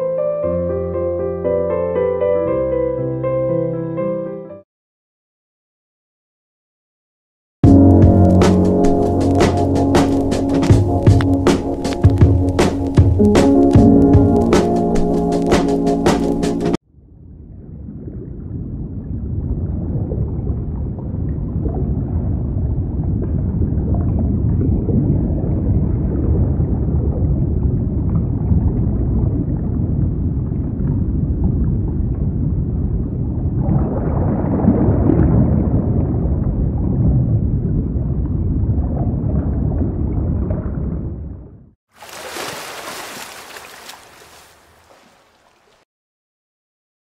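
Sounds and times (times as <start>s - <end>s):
underwater rumble of water: 7.7s - 15.5s, 17.0s - 41.7s.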